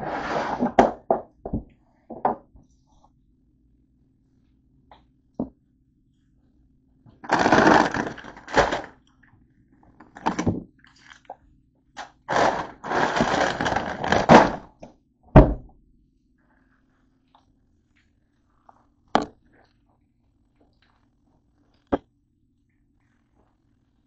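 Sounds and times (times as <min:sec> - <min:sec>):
rustling and clatter: 0:07.2 - 0:09.0, 0:12.3 - 0:14.8.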